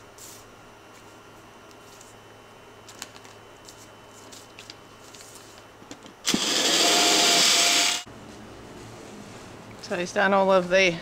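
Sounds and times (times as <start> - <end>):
paper and tape rustling: 2.8 - 5.7
cordless drill whining: 6.2 - 8.1.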